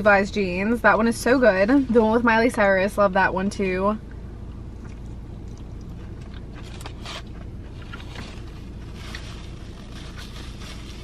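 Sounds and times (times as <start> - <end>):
low car cabin hum: 0.0 - 11.0
paper wrapper crinkling: 6.5 - 11.0.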